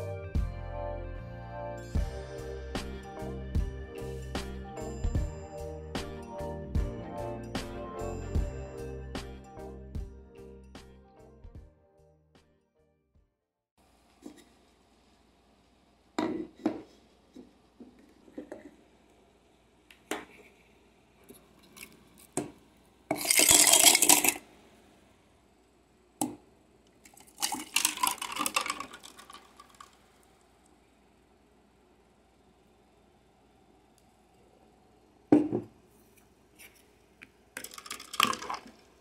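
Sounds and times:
drink pouring into cup with ice: 0:23.1 - 0:24.4, 0:27.0 - 0:30.1, 0:37.6 - 0:39.0
knocks and clinks on tabletop: 0:35.4 - 0:35.7.

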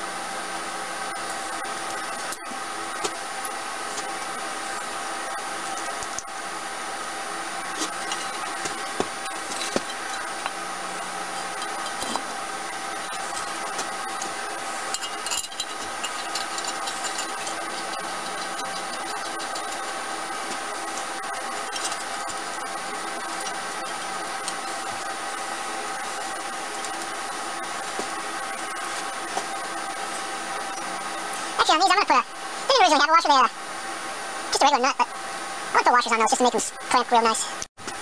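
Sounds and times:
steady machine hum: 0:00.0 - 0:38.0
metal parts clinking and knocking: 0:07.8 - 0:10.5, 0:13.0 - 0:25.0.

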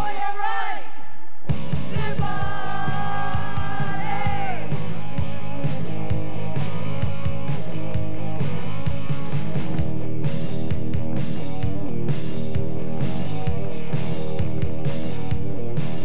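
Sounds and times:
steady drum beat: 0:01.5 - 0:16.0
person singing: 0:01.8 - 0:04.9.

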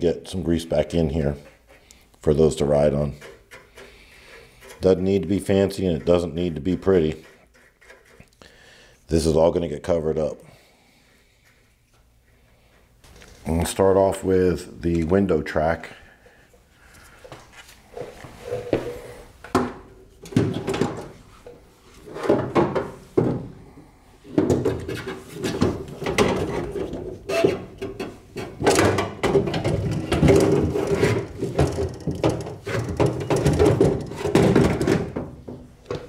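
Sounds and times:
metal clunks and knocks: 0:24.3 - 0:36.0
scraping and clattering: 0:24.3 - 0:36.0.

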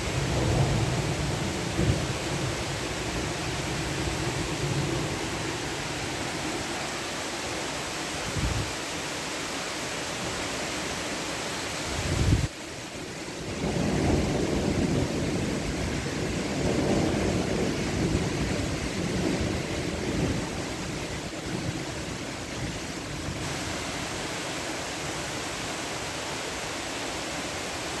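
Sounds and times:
heavy rain: 0:00.0 - 0:28.0
wind rumbling on microphone: 0:08.2 - 0:08.8, 0:11.9 - 0:12.5.

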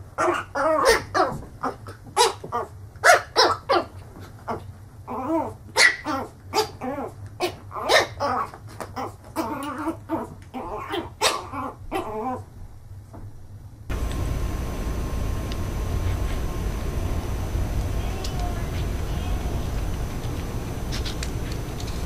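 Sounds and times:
puppy yapping: 0:00.2 - 0:03.9, 0:04.5 - 0:12.4.

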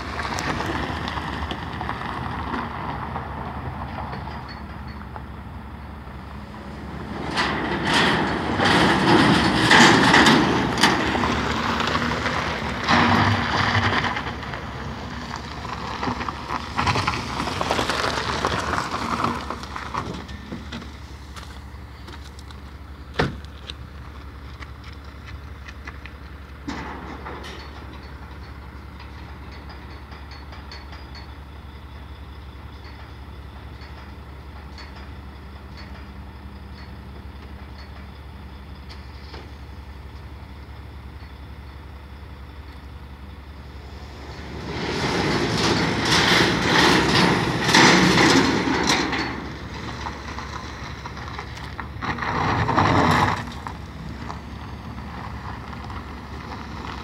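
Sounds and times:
truck engine idling: 0:00.0 - 0:57.0
rushing noise: 0:43.4 - 0:57.0.

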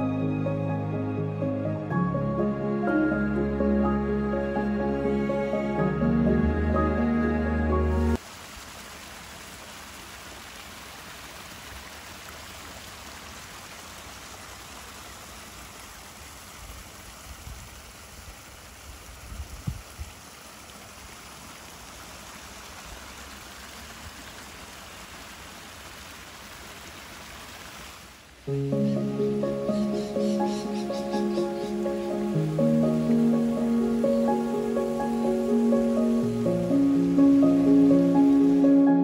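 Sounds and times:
waterfall splashing over rocks: 0:08.2 - 0:28.7, 0:29.7 - 0:38.9.

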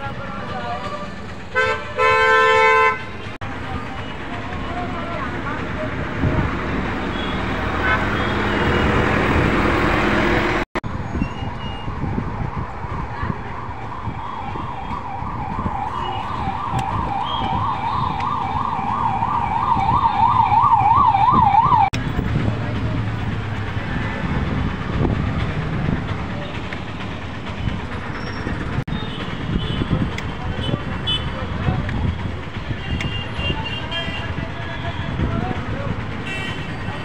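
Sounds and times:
siren wailing: 0:11.9 - 0:21.9.

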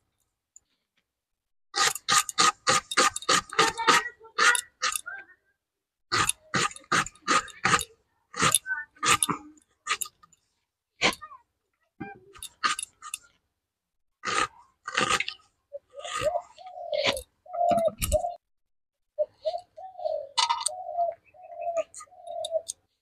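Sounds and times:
knife crunching through garlic: 0:01.8 - 0:05.0, 0:06.1 - 0:10.2, 0:12.4 - 0:13.3, 0:14.2 - 0:16.4.

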